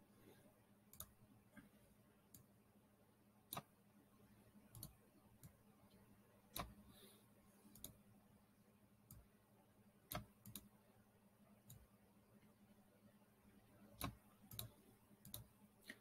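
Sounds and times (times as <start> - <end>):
low steady hum: 0.0 - 16.0
computer mouse clicks: 0.9 - 1.2, 3.5 - 3.7, 4.7 - 5.6, 6.5 - 6.8, 7.7 - 8.0, 9.1 - 9.3, 10.1 - 10.7, 13.8 - 16.0.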